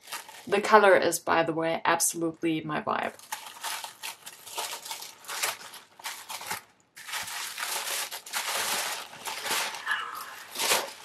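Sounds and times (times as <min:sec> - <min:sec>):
tissue paper crinkling: 0:00.0 - 0:00.5, 0:03.1 - 0:11.0.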